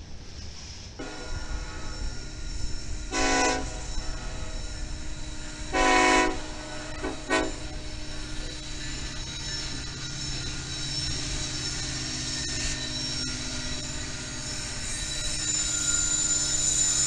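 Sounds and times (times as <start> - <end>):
train rumble: 0.0 - 17.0
locomotive air horn: 1.0 - 1.8, 3.1 - 4.1, 5.7 - 7.7.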